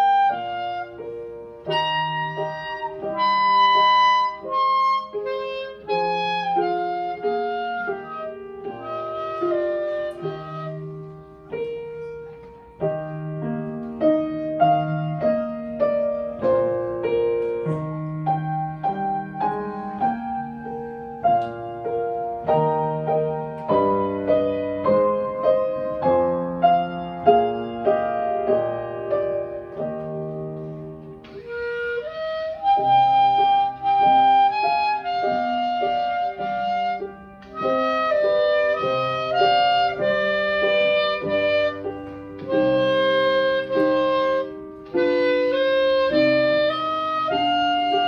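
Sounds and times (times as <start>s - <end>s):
clarinet held note: 0.0s - 12.4s, 30.6s - 48.0s
piano chords: 0.0s - 48.0s.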